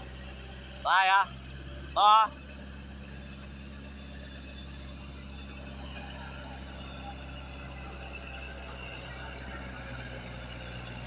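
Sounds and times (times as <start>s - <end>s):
tractor diesel engine droning: 0.0s - 11.0s.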